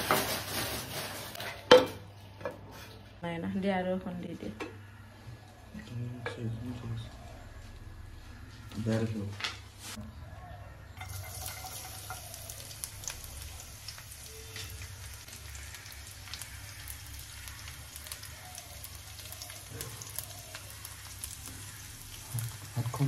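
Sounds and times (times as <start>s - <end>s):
oil sizzling in frying pan: 11.0s - 23.0s.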